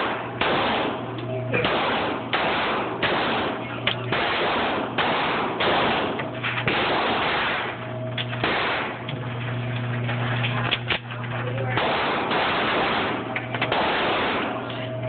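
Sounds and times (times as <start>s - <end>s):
handgun shots echoing indoors: 0.0s - 1.0s, 1.6s - 9.1s, 11.7s - 14.9s.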